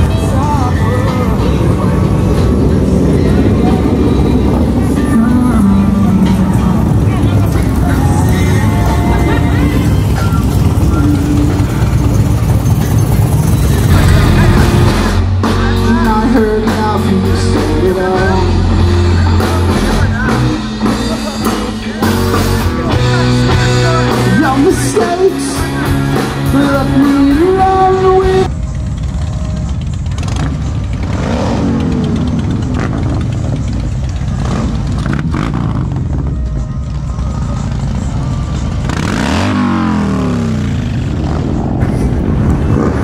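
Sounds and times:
man singing: 0:00.0 - 0:12.1, 0:13.8 - 0:28.5
bass guitar: 0:00.0 - 0:43.0
drums: 0:00.0 - 0:43.0
low rumble of motorcycle engines: 0:00.0 - 0:43.0
electric guitar: 0:13.9 - 0:28.5
motorcycle passing by: 0:30.0 - 0:36.4, 0:38.0 - 0:43.0.

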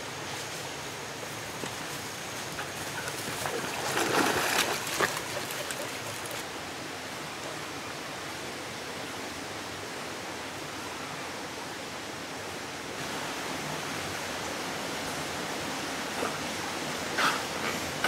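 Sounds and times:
flowing stream water: 0:00.0 - 0:18.0
dog splashing in water: 0:02.6 - 0:06.4.

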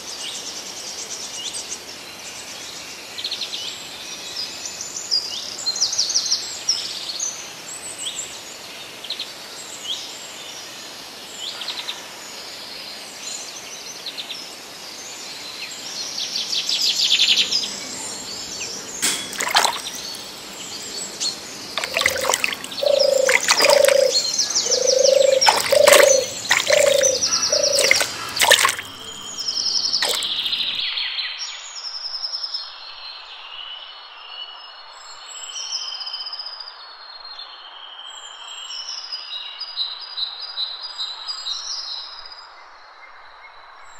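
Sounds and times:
birds chirping and trilling: 0:17.2 - 0:30.8
low repeated bird calls: 0:17.2 - 0:30.8.

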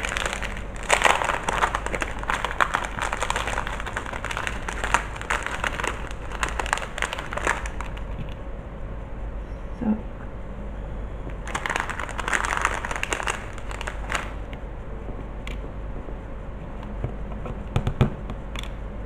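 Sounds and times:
plastic bag crinkling: 0:00.0 - 0:08.4, 0:11.3 - 0:14.5.

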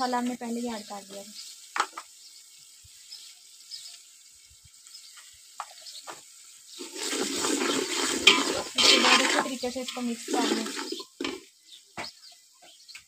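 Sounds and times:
metal spoon stirring in a pot: 0:06.7 - 0:11.5.

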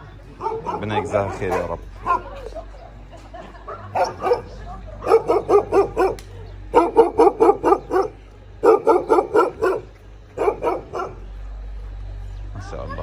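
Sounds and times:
dog barking: 0:00.4 - 0:02.5, 0:03.7 - 0:11.3.

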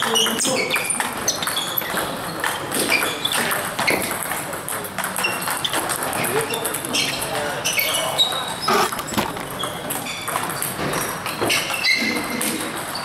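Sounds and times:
shoes squeaking on floor: 0:07.7 - 0:10.3
table tennis balls clicking: 0:08.3 - 0:10.8.

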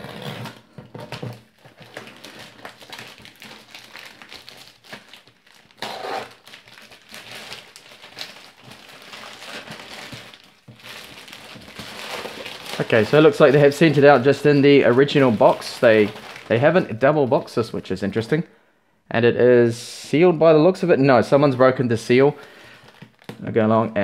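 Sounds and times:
packaging crinkling and rustling: 0:00.0 - 0:17.5, 0:22.6 - 0:23.6.

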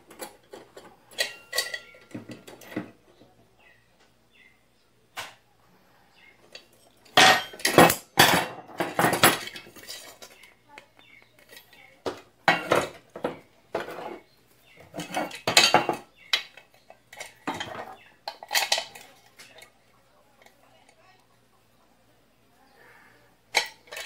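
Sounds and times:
metal lid clattering and scraping: 0:00.1 - 0:02.9, 0:07.1 - 0:10.4, 0:12.5 - 0:19.1, 0:23.5 - 0:24.0.

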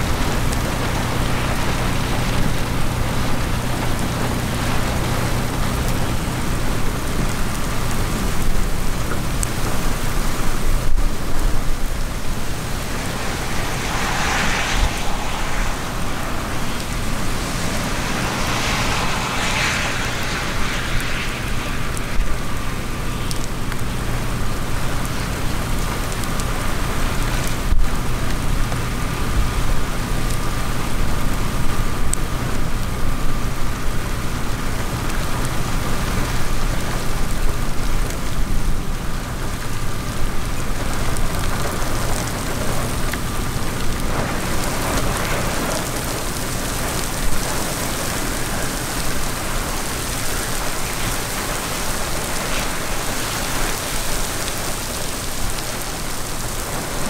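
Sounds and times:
heavy rain falling: 0:00.0 - 0:57.0.

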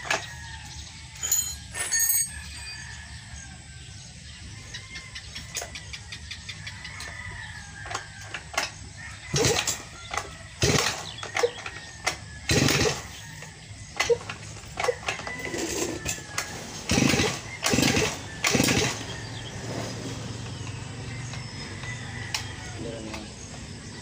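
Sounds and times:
recoil starter cord yanks: 0:07.8 - 0:19.5.

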